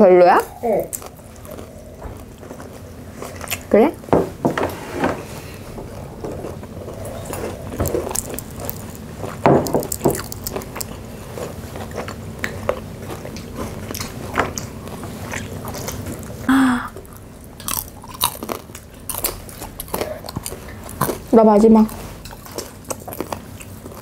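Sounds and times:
crunchy chewing and biting: 0.4s - 3.7s, 5.4s - 24.0s
short vocal sound: 16.5s - 17.0s.

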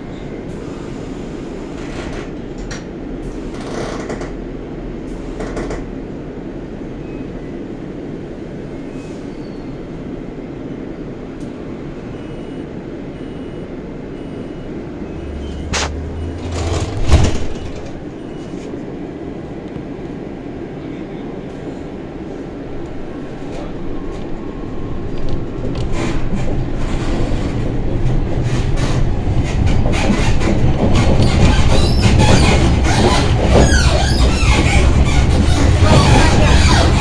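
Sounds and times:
tram running rumble: 0.0s - 37.0s
clunk and rattle: 15.6s - 18.4s, 25.1s - 37.0s.

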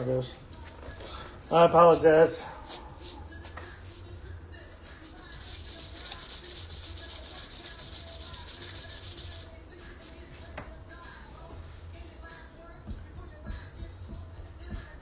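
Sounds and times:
steady low hum: 2.4s - 15.0s
fast rhythmic rubbing: 2.6s - 4.3s, 4.9s - 10.4s.

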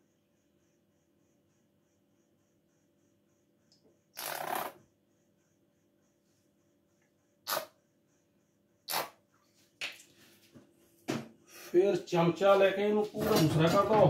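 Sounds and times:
squeeze bottle sputtering: 4.2s - 4.8s, 7.5s - 7.7s, 8.9s - 9.2s.

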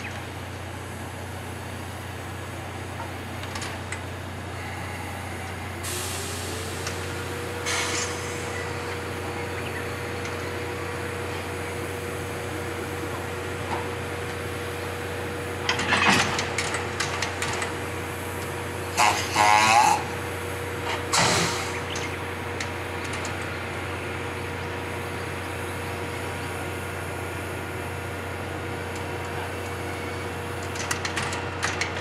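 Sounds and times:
steady tone over low hum: 0.0s - 30.8s
clanking as train couples: 1.0s - 32.0s
steam hissing: 4.3s - 16.0s, 17.7s - 30.7s.

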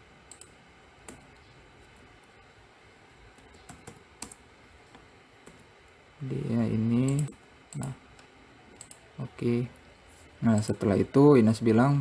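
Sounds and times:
low background hiss: 0.0s - 12.0s
computer keyboard keystrokes: 3.4s - 4.4s, 8.8s - 9.0s.

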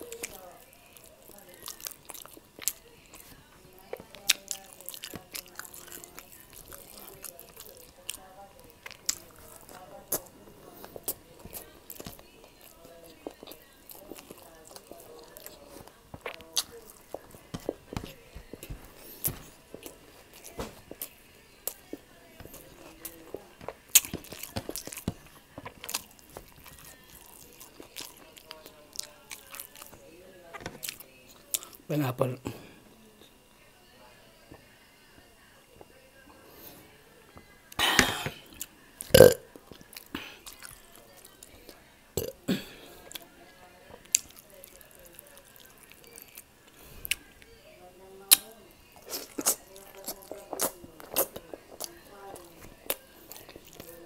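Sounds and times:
mouth eating sounds: 0.0s - 3.2s, 3.8s - 30.0s, 37.7s - 41.5s, 42.2s - 43.2s, 48.3s - 54.0s
chewing: 0.0s - 31.9s, 35.8s - 47.5s, 48.2s - 54.0s.

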